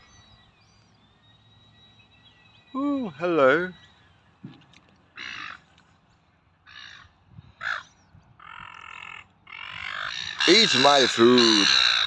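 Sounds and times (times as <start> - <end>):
gulls squawking: 5.1 - 5.8, 6.7 - 12.0.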